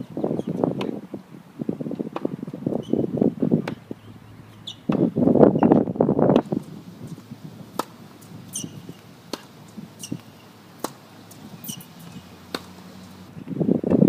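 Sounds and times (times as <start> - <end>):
short high squeaks: 2.8 - 3.1, 4.0 - 4.9, 8.5 - 9.0, 10.0 - 10.5, 11.3 - 13.3
tennis ball struck by racket: 3.6 - 3.9, 4.9 - 5.1, 6.3 - 13.1.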